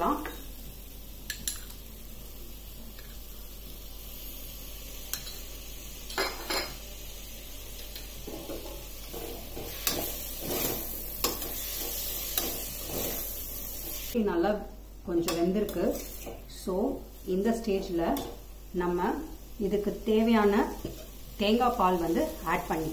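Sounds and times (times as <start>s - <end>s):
vegetables sizzling in a pot: 0.0s - 22.9s.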